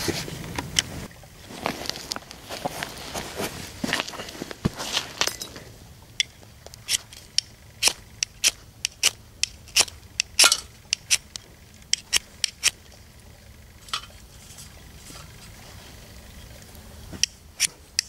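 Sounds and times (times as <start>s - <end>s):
firesteel scraping: 0.0s - 5.8s, 13.8s - 17.8s.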